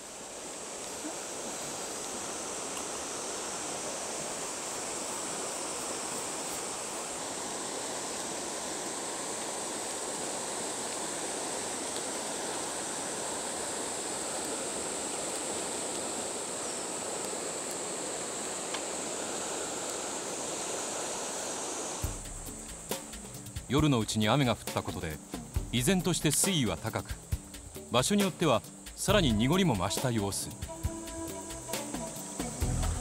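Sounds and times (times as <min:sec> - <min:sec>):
river water rushing: 0:00.0 - 0:22.1.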